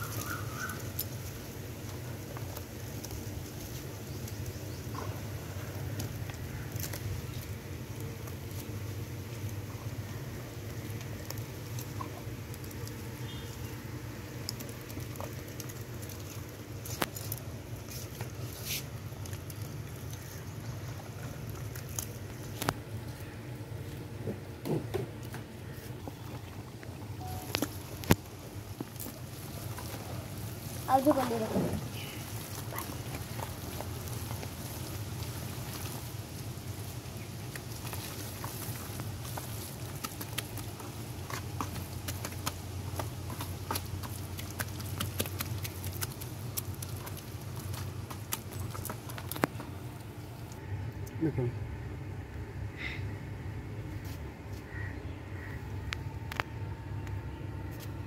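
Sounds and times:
hands squelching wet mud: 0.0s - 51.1s
small wet clicks and splats: 0.0s - 51.2s
hands squelching mud: 25.5s - 50.6s.

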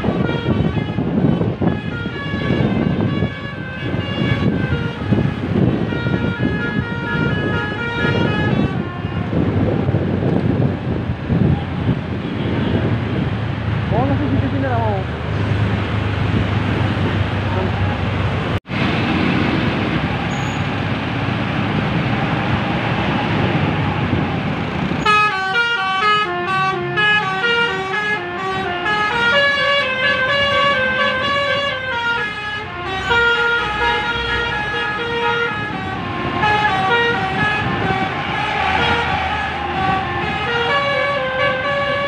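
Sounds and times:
bus horn playing melody: 0.0s - 9.6s, 25.0s - 42.0s
street traffic engines: 0.0s - 42.0s.

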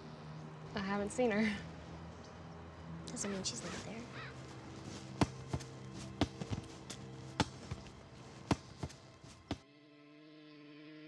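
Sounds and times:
soft held synth chord: 0.0s - 4.8s
low music drone: 0.0s - 11.0s.

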